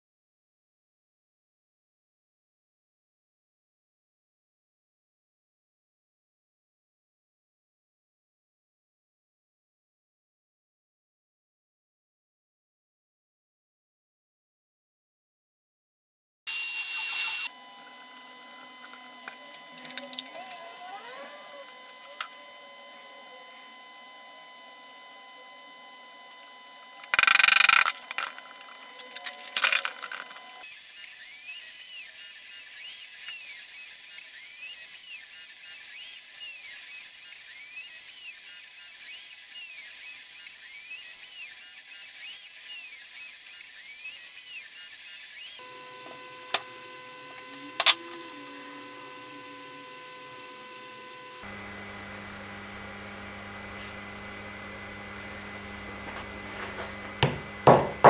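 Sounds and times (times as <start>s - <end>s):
router high whine: 16.5s - 58.0s
wooden mallet knocking: 57.2s - 58.0s.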